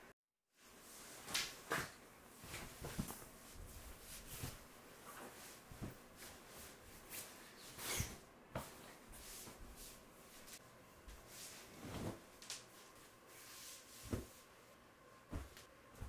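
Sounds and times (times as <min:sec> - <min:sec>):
fabric rustling: 0:11.2 - 0:14.5.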